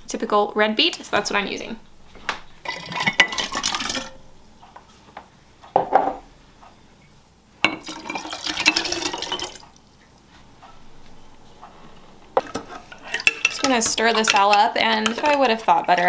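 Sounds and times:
liquid pouring into glass jar: 2.6s - 4.2s, 7.8s - 9.6s.

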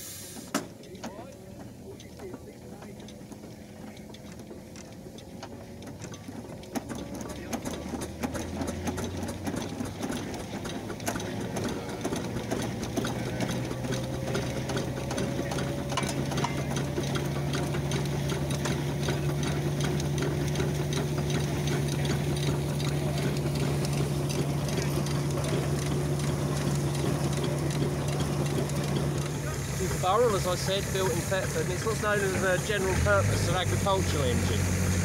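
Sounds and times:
traction engine clatter: 0.0s - 35.0s.

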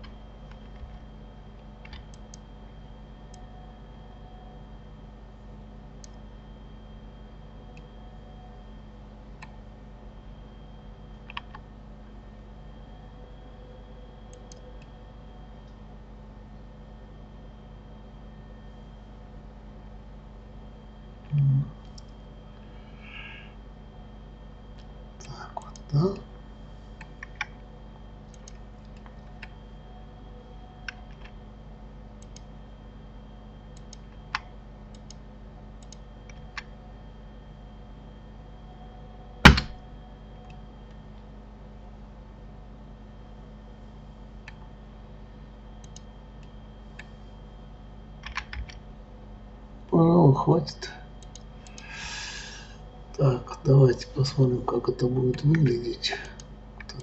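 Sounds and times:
low electrical hum: 0.0s - 57.0s
computer mouse and keyboard clicks: 1.8s - 2.4s, 11.2s - 11.6s, 27.0s - 27.6s, 28.2s - 29.6s, 30.8s - 31.4s, 32.2s - 32.5s, 35.8s - 36.7s, 45.8s - 47.2s, 48.2s - 48.8s, 51.2s - 52.0s.

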